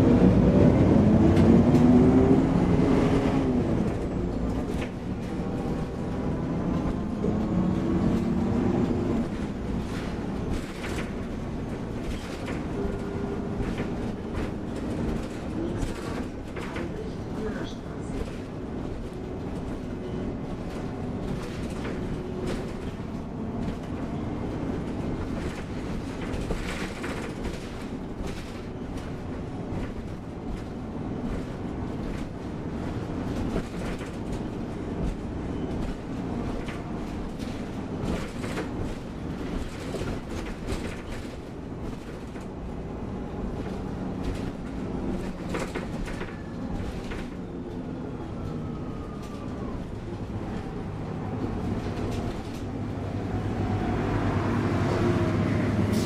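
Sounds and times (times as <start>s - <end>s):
bus engine and road rumble: 0.0s - 56.0s
knocks and rattles: 18.1s - 42.7s, 43.5s - 47.4s.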